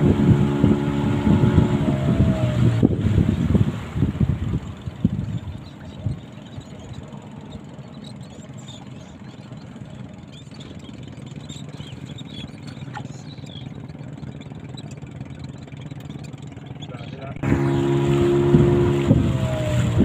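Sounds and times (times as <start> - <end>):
boat engine low hum: 0.0 - 20.0
seabirds chirping: 3.1 - 18.6.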